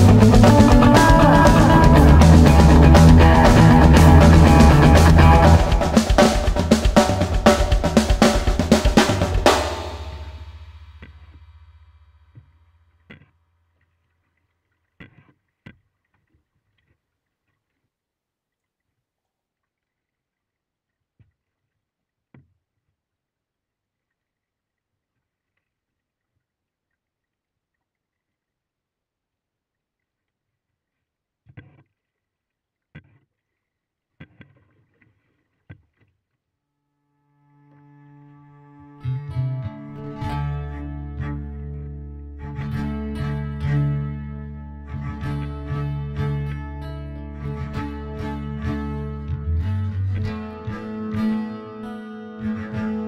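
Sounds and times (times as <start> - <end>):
low music note: 0.0 - 12.0.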